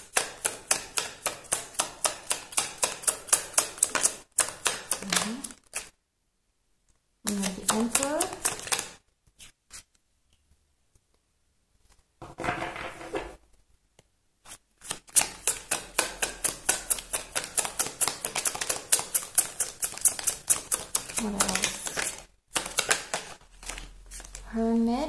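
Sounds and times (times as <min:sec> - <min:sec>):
cards rustling: 0:00.2 - 0:06.0, 0:07.3 - 0:11.1, 0:14.4 - 0:24.6
card deck being shuffled: 0:14.4 - 0:24.4.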